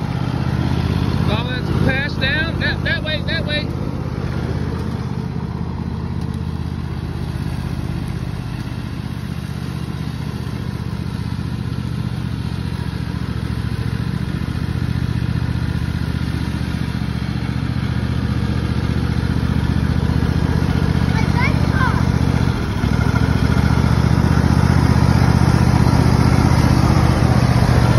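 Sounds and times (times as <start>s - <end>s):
riding lawn mower engine running: 0.0s - 27.9s.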